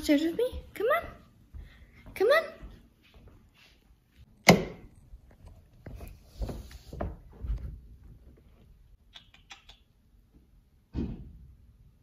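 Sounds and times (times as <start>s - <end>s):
footsteps on carpeted stairs: 0.0s - 4.4s, 5.0s - 8.9s.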